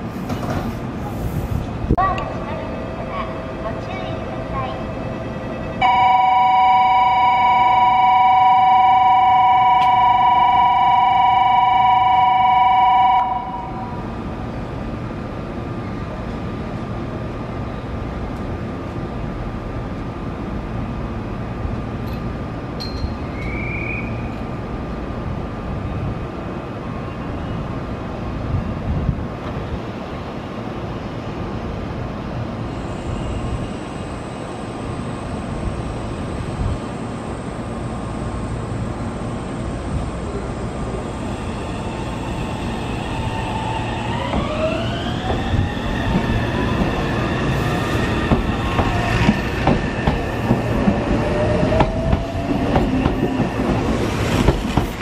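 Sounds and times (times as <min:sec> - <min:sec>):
electric train humming: 0:00.3 - 0:23.4, 0:31.1 - 0:55.0
train wheel clatter: 0:48.1 - 0:55.0.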